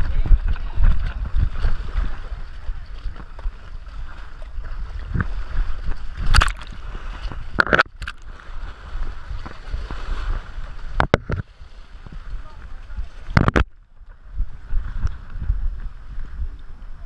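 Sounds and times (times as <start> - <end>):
wind rumble on microphone: 0.0 - 17.0
sharp splashes or knocks: 6.2 - 8.4.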